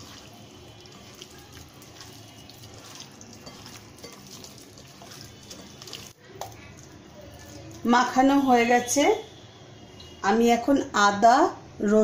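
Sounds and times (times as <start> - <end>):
wet squelching of kneaded meat: 0.0 - 8.1.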